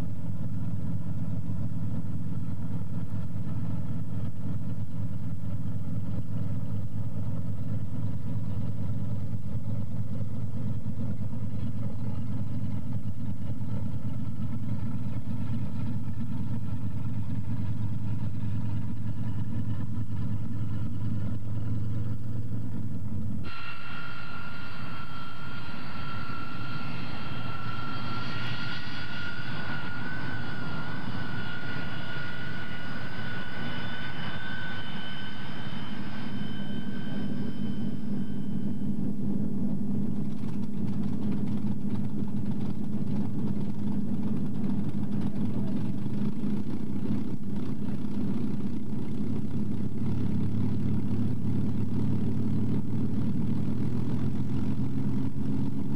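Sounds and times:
high whine: 0:00.0 - 0:55.9
piston engine running: 0:00.0 - 0:55.9.

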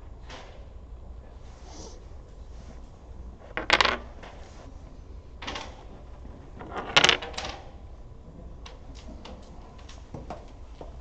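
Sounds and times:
dominoes clacking on wooden table: 0:03.4 - 0:04.7, 0:05.4 - 0:07.8.

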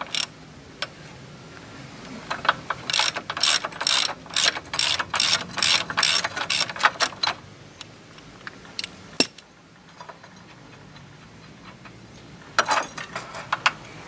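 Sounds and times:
ratchet wrench clicking: 0:00.0 - 0:00.3, 0:02.7 - 0:07.3.

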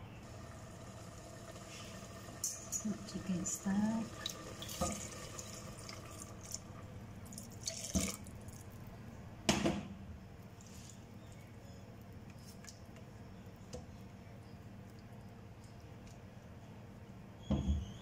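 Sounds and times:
liquid dripping into metal pot: 0:04.2 - 0:09.0.

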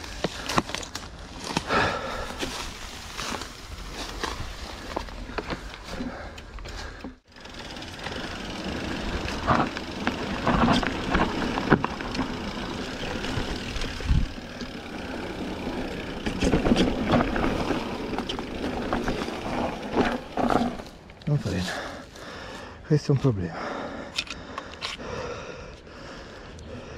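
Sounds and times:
tyres rumbling on dirt and rock: 0:00.0 - 0:22.1
bike knocks and rattles: 0:00.1 - 0:21.1.

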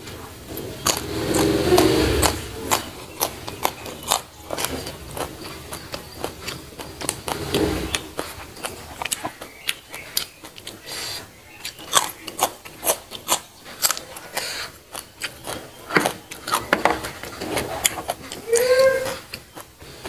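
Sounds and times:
person chewing crunchy beans: 0:00.4 - 0:20.0.

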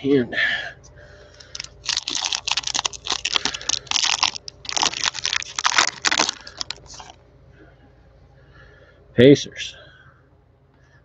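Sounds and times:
wrapper tearing and crinkling: 0:01.4 - 0:07.2.

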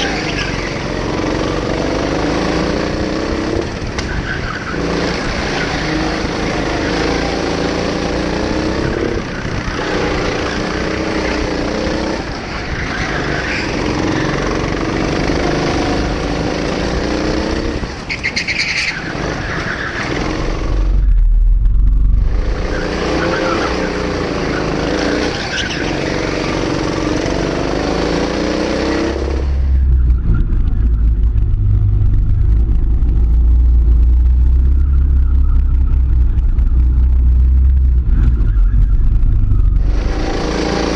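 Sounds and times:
go-kart motor at speed: 0:00.0 - 0:21.1, 0:22.2 - 0:33.2, 0:38.1 - 0:40.9
heavy low rumble: 0:20.6 - 0:22.7, 0:29.2 - 0:40.6
high squeal: 0:34.5 - 0:40.8.

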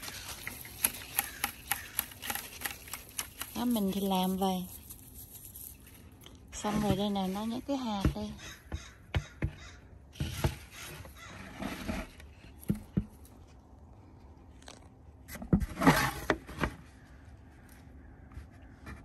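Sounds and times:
corn tassels rustling: 0:00.0 - 0:08.3.

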